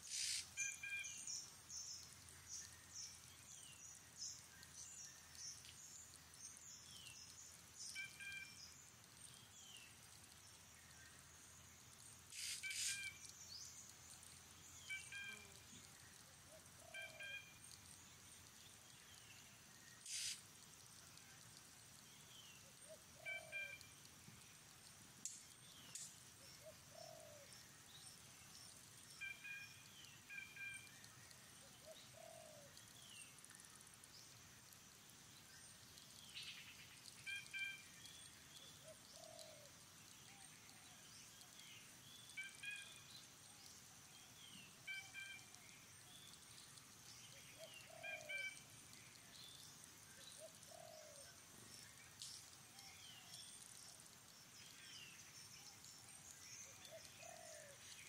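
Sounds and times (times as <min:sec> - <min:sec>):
high bird chirps: 0:00.1 - 0:01.2, 0:12.4 - 0:13.2, 0:20.0 - 0:20.4.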